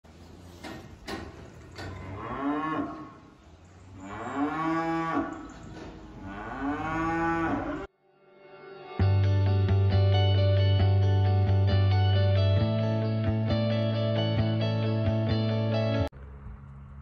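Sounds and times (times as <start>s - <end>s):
sharp knocks: 0.6s - 2.0s
cattle mooing: 1.8s - 7.9s.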